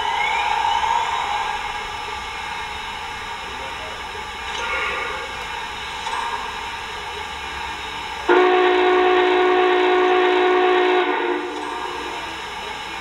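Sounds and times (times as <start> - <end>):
steam whistle blast: 8.3 - 12.3
steady hiss: 11.0 - 13.0.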